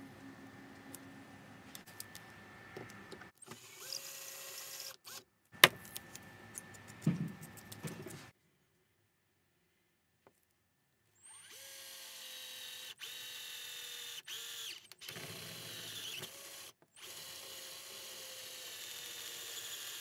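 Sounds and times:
cordless drill boring through steel: 3.5s - 5.2s, 11.2s - 20.0s.

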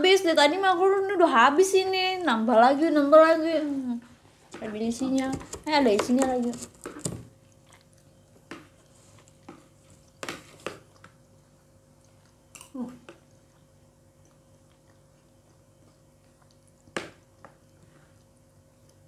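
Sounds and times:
faint hum: 0.0s - 19.0s
soft chewing: 3.4s - 19.0s
spoons scraping plastic plates: 4.6s - 7.2s.

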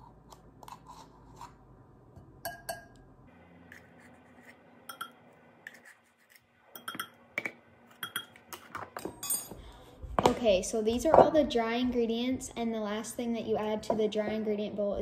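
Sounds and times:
metal spoon clinking on glass bowl: 2.5s - 3.0s, 4.9s - 5.2s, 6.7s - 7.2s, 7.9s - 8.4s, 9.2s - 9.6s.

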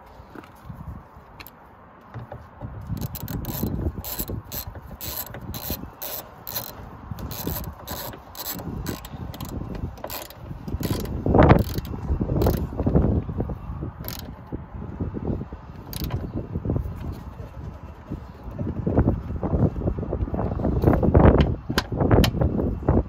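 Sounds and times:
socket ratchet clicking: 2.8s - 12.9s, 14.0s - 14.4s, 15.8s - 16.2s.

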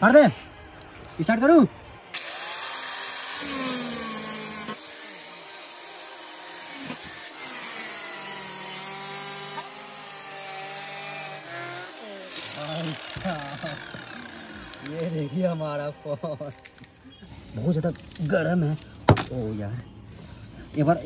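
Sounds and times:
electric cutting disc whining: 2.1s - 15.8s.

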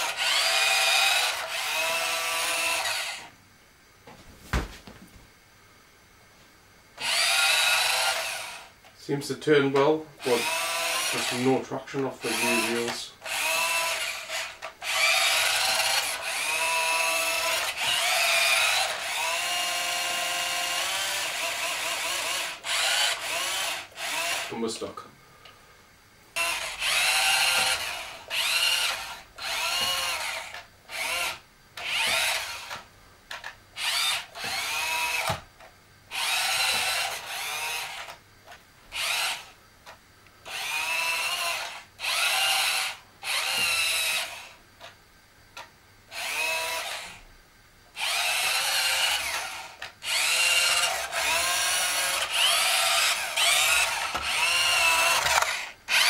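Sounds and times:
toy car electric motor whining: 0.0s - 3.3s, 7.0s - 8.7s, 10.2s - 11.6s, 12.2s - 24.5s, 26.4s - 35.4s, 36.1s - 38.2s, 38.9s - 39.6s, 40.5s - 44.6s, 45.6s - 47.3s, 48.0s - 56.0s.

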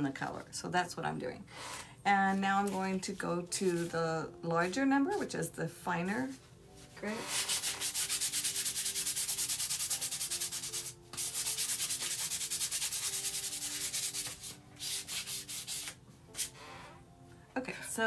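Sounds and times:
sandpaper rubbing on wood: 7.2s - 16.5s.

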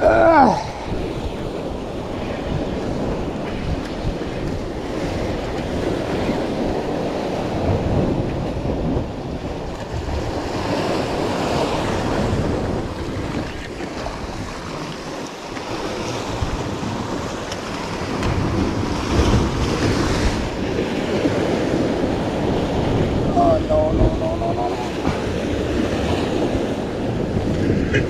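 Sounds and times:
wind buffeting microphone: 0.0s - 28.0s
surf breaking against rocks: 9.6s - 28.0s.

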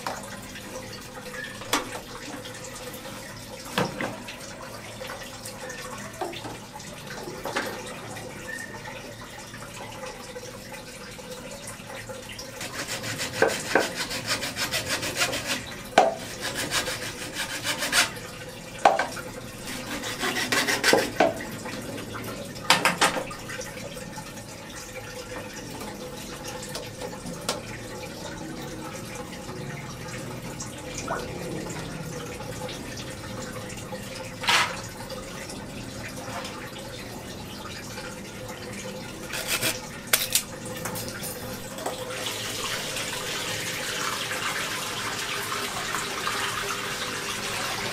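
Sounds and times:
aquarium water trickling: 0.0s - 47.9s
stick scraping against pump: 12.6s - 18.2s, 19.6s - 21.2s, 39.3s - 39.8s.

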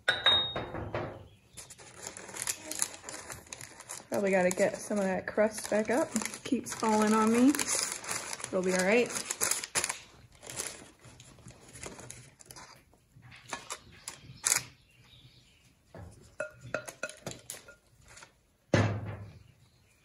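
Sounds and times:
wooden spoon knocking and scraping pot: 15.9s - 18.2s.

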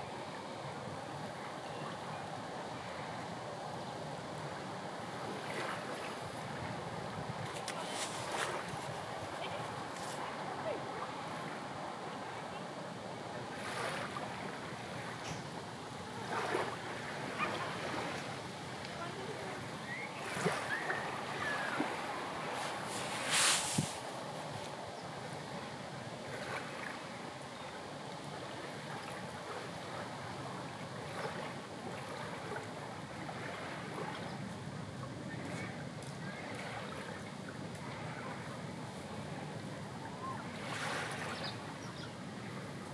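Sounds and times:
gentle sea surf: 0.0s - 42.9s
wind hissing: 21.2s - 24.7s.

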